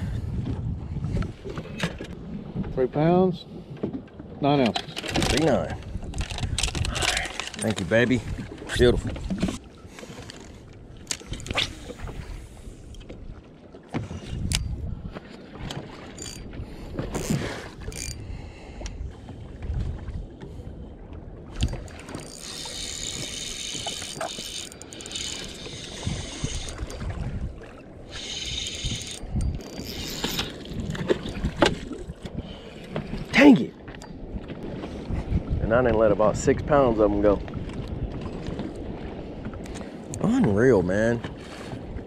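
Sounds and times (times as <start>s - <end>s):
wind buffeting the microphone: 0.0s - 4.0s, 5.0s - 42.0s
water slapping against a hull: 0.0s - 42.0s
fishing reel clicks and knocks: 17.1s - 18.2s, 21.6s - 27.0s, 28.1s - 30.6s.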